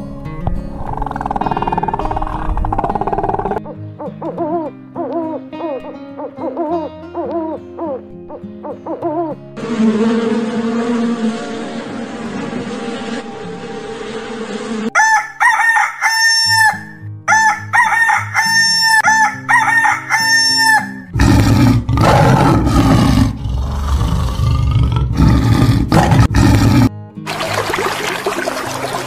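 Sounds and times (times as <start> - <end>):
rooster crowing: 14.9 - 21.1.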